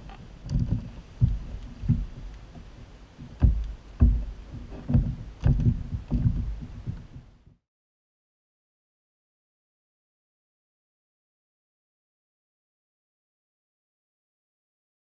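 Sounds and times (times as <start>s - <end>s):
knocks on plastic kayak hull: 3.3s - 7.3s.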